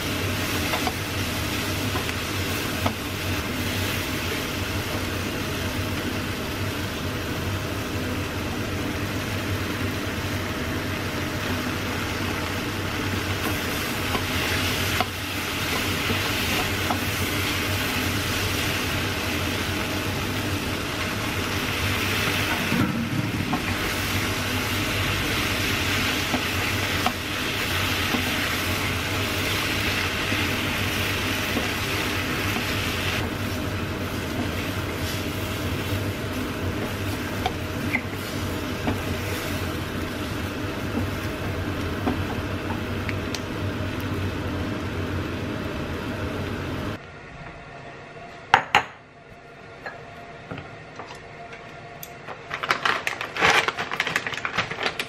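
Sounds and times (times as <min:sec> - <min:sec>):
food sizzling in a frying pan: 0:00.0 - 0:47.0.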